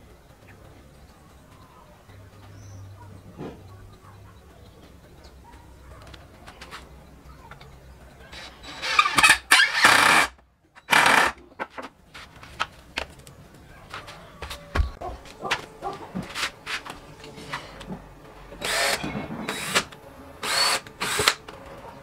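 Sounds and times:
rooster crowing: 14.0 - 15.2.

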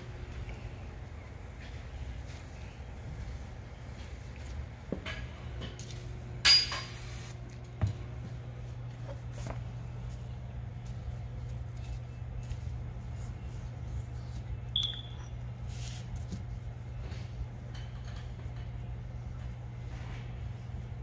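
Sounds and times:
steady low hum: 0.0 - 21.0
short high chirp: 14.8 - 15.4.

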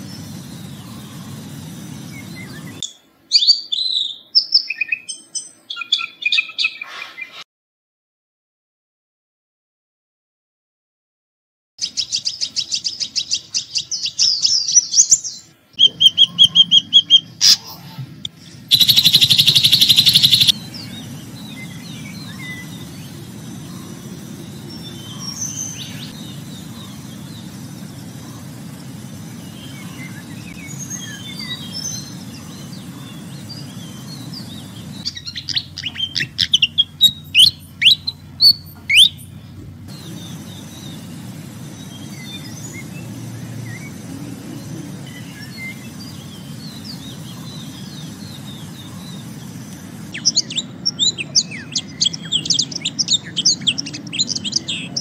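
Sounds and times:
low background hum: 0.0 - 3.5, 11.9 - 55.0
loud dense bird trill: 0.0 - 7.4, 11.8 - 55.0
high bird chirps: 11.8 - 44.0, 45.0 - 55.0
soft bird calls: 11.8 - 55.0
sharp falling bird whistles: 18.7 - 20.6.

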